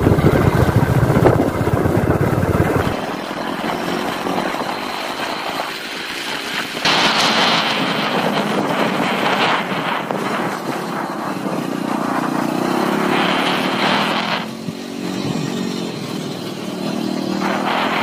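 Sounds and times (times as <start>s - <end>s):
vehicle engine running: 0.0s - 18.0s
rushing hiss: 5.0s - 11.2s.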